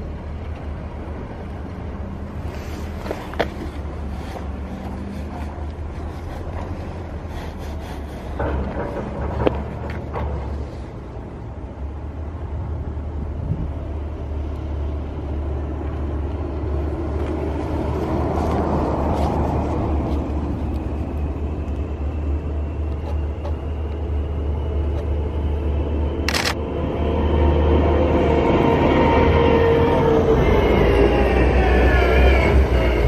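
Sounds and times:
road traffic rumble: 0.0 - 33.0
streetcar approaching: 0.0 - 33.0
car passing close: 14.7 - 25.6.

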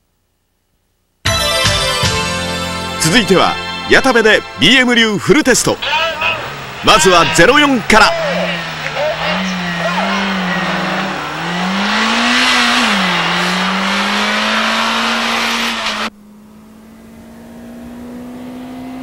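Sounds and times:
car engine accelerating: 5.8 - 19.0.

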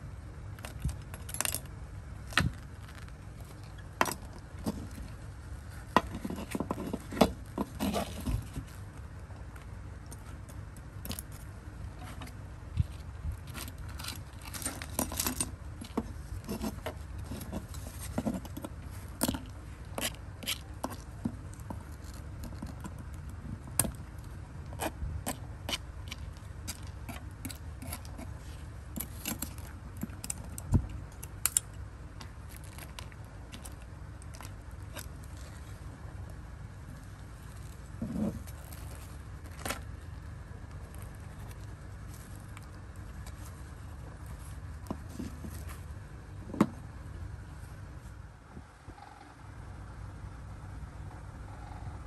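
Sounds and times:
steady low hum: 0.0 - 52.0
toy parts clicking and scraping: 10.1 - 23.0, 24.8 - 31.8.

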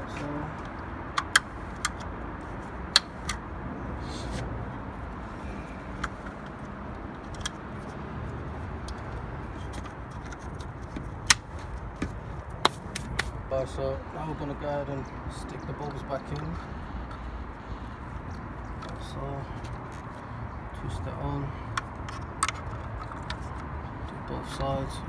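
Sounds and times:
sharp plastic clicks and snaps: 0.6 - 2.1.

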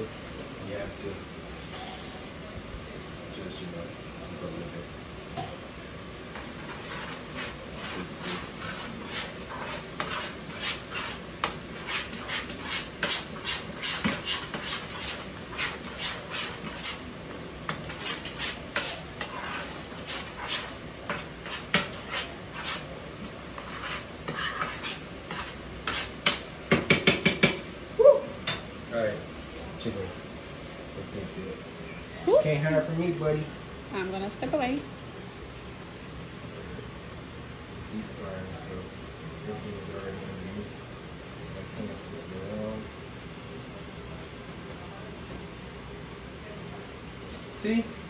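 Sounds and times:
utensil scraping a skillet: 6.4 - 26.4.

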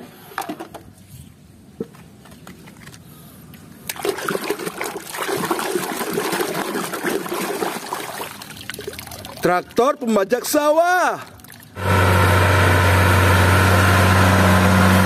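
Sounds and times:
water splashing in a plastic tub: 3.9 - 10.1, 10.9 - 11.8.

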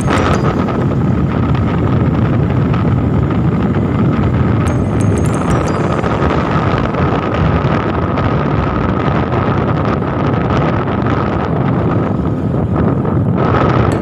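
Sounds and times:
thin steady whine: 0.0 - 10.1
vehicle road noise: 0.0 - 14.0
wind rush on microphone: 0.0 - 14.0.

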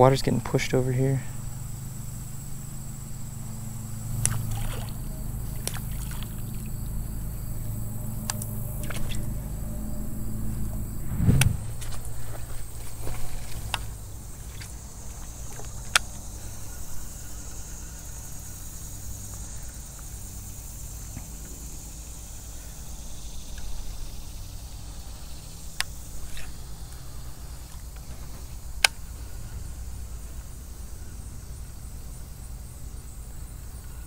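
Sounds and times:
insects droning: 0.0 - 34.0
low rumble: 6.2 - 15.0.

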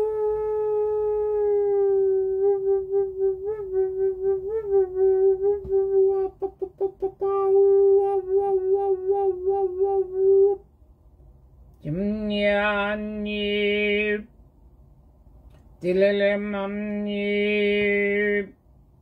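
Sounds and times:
woman toning a long note: 0.0 - 10.6.

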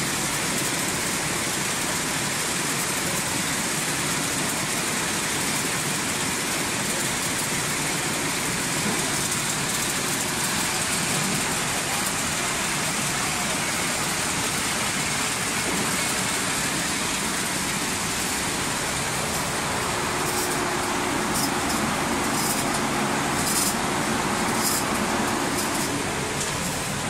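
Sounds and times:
machinery running: 7.2 - 27.0.

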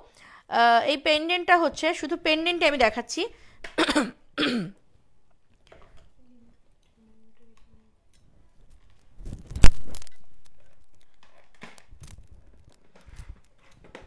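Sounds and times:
rustling and crinkling: 5.4 - 14.0.

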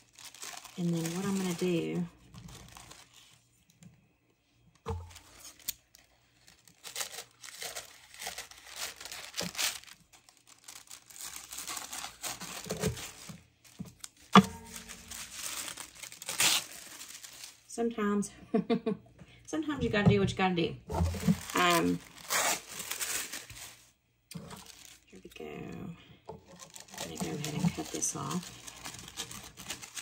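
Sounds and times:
tissue paper rustling: 0.0 - 3.4, 5.0 - 17.7, 21.0 - 25.1, 26.4 - 30.0.

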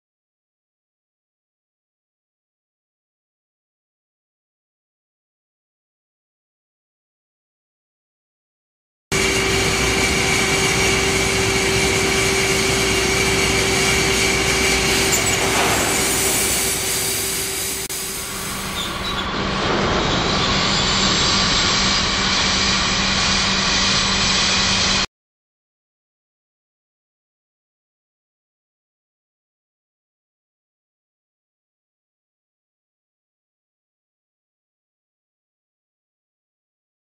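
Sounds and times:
steady hum: 9.2 - 19.6.

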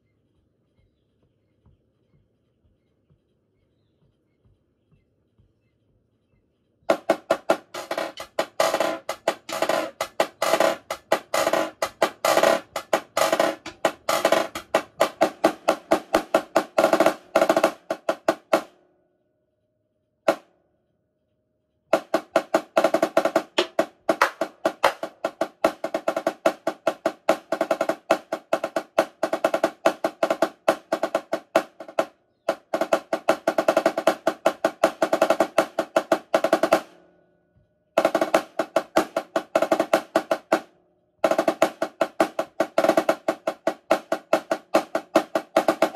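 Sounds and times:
marching snare drum: 6.9 - 18.7, 21.9 - 37.0, 38.0 - 45.9.

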